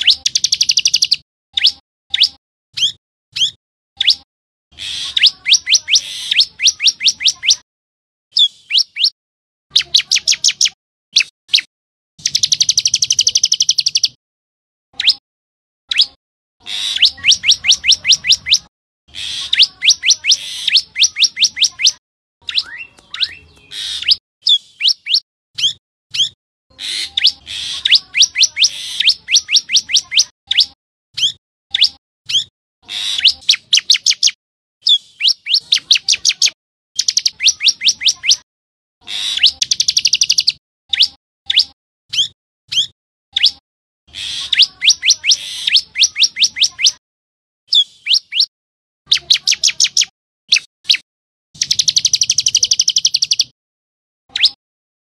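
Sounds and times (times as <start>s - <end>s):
bird singing high repeated notes: 0.0s - 4.2s, 5.1s - 7.6s, 8.3s - 14.2s, 16.8s - 18.7s, 19.4s - 32.5s, 33.2s - 38.4s, 39.4s - 43.6s, 44.4s - 47.0s, 47.7s - 48.5s, 51.6s - 53.5s, 54.3s - 54.6s.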